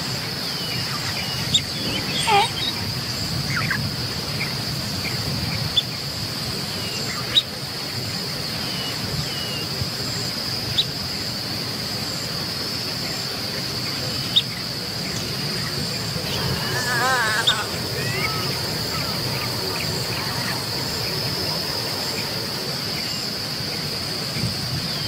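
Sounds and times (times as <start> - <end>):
high-pitched insect drone: 0.0 - 5.0, 10.2 - 25.0.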